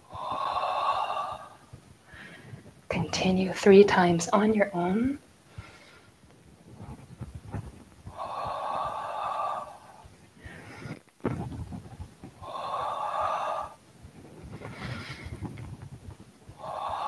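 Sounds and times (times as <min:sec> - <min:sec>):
in-breath: 0:00.0 - 0:02.8, 0:05.5 - 0:06.2, 0:08.1 - 0:11.1, 0:12.4 - 0:15.9, 0:16.5 - 0:17.0.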